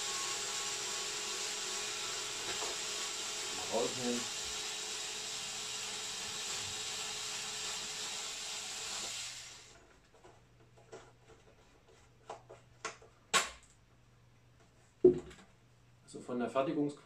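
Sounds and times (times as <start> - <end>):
electric screwdriver running: 0.0 - 9.8.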